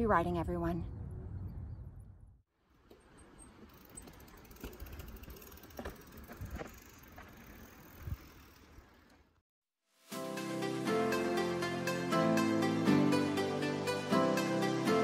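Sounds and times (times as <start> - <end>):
bike tyre noise on dirt: 2.7 - 9.4.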